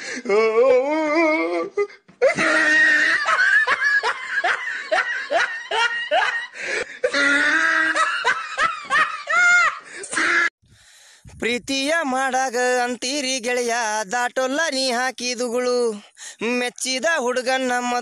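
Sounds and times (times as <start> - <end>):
person laughing hard: 2.2 - 10.5.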